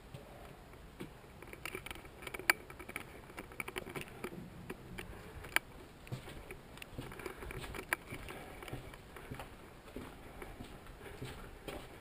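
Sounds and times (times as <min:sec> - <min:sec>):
footsteps crunching on concrete: 0:05.1 - 0:12.0.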